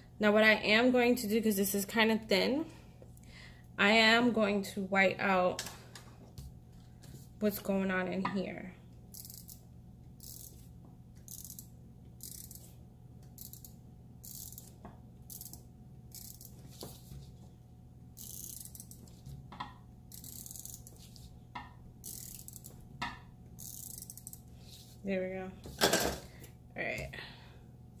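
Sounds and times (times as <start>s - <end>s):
correction tape rasping on paper: 20.2s - 21.3s.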